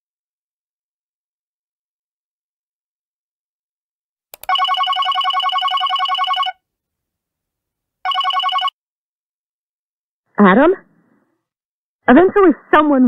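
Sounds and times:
telephone ringing: 4.4s - 6.6s, 8.0s - 8.8s.

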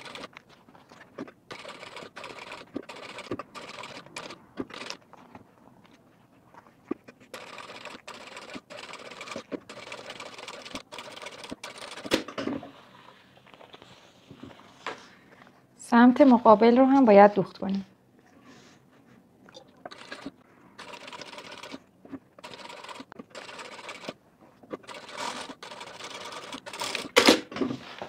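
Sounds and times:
sewing machine stitching leather: 0.0s - 0.4s, 1.5s - 5.0s, 7.3s - 12.3s, 19.9s - 21.8s, 22.4s - 27.5s.

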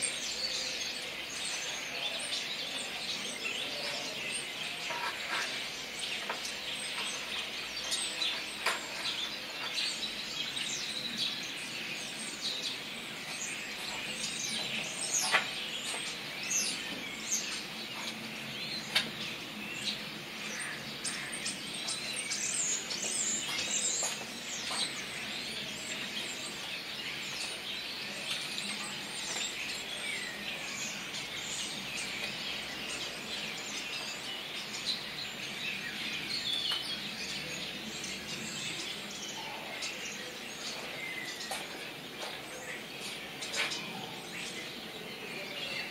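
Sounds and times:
starlings chattering: 0.0s - 45.9s.

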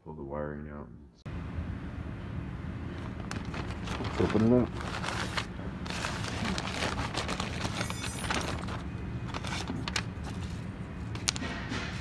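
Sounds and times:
plastic packaging crinkling: 3.0s - 10.5s.

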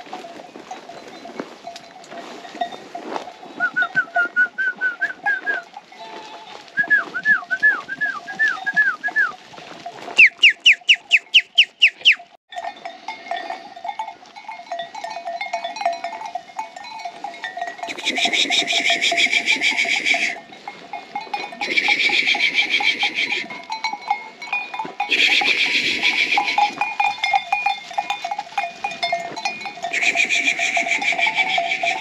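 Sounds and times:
sheep bells ringing and clinking: 0.0s - 32.0s
songbird calling: 10.2s - 12.4s.

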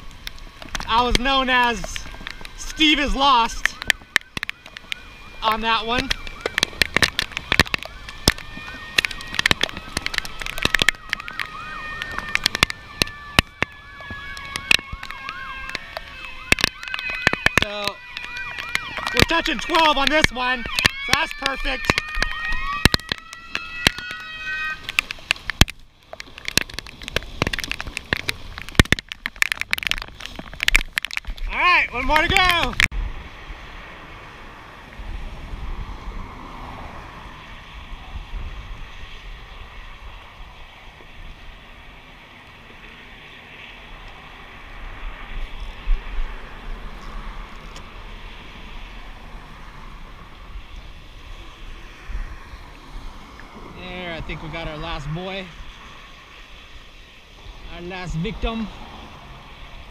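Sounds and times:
wind buffeting microphone: 0.0s - 42.2s, 43.8s - 59.9s
distant siren yelping: 0.9s - 25.1s
sharp taps and clicks: 3.4s - 32.9s.

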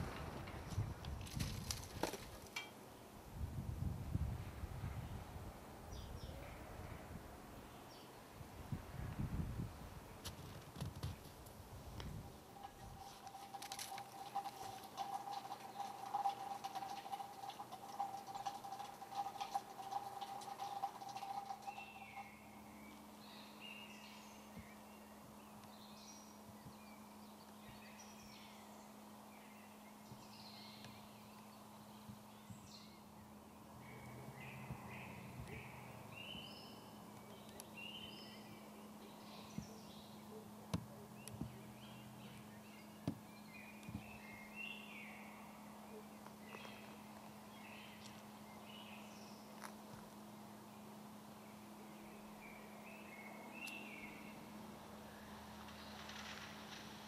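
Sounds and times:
small birds chirping: 5.9s - 6.7s, 12.0s - 56.8s.

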